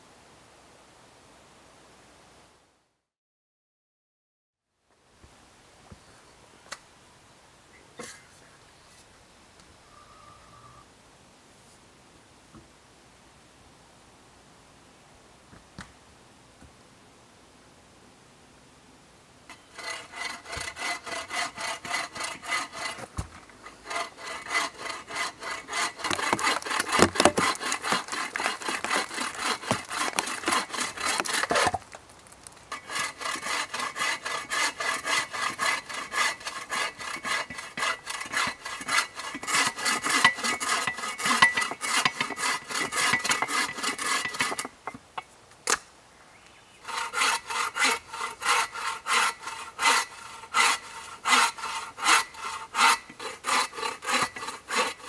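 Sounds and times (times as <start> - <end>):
bow saw cutting log: 19.5 - 31.8, 32.7 - 44.8, 46.8 - 55.0.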